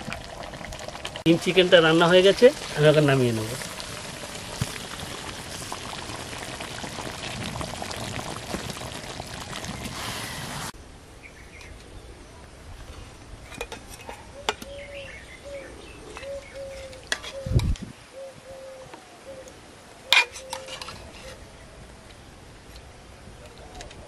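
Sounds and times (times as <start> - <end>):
curry bubbling and sizzling: 0.0 - 10.8
bird calls: 14.2 - 21.6.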